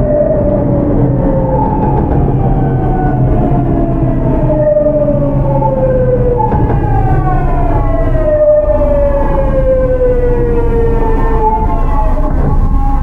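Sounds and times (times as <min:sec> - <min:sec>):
train inverter whining: 0:00.0 - 0:13.0
wheels rumbling on rails: 0:00.0 - 0:13.0.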